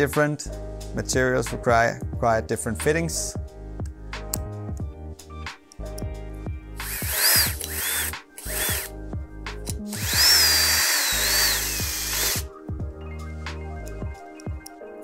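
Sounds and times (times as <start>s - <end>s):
cordless drill motor whine: 6.8s - 8.9s, 9.9s - 12.5s.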